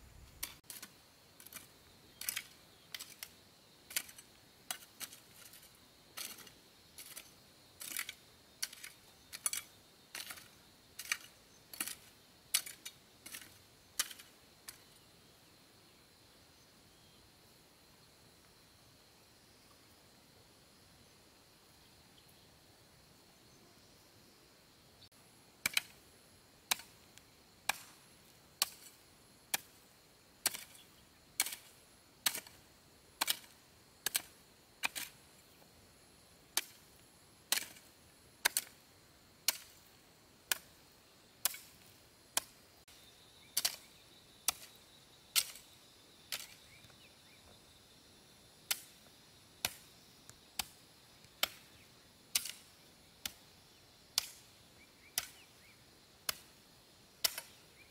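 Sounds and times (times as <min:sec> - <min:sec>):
hand tool chopping: 0:25.6 - 0:25.9, 0:26.7 - 0:26.9, 0:30.4 - 0:30.8, 0:31.4 - 0:32.6, 0:33.2 - 0:35.1, 0:37.5 - 0:37.8, 0:39.5 - 0:39.7, 0:57.2 - 0:57.6.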